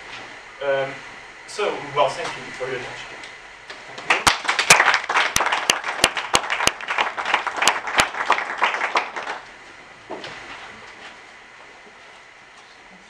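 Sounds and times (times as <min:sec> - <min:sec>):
sharp close claps: 0:04.0 - 0:09.4
audience applauding: 0:04.0 - 0:09.5.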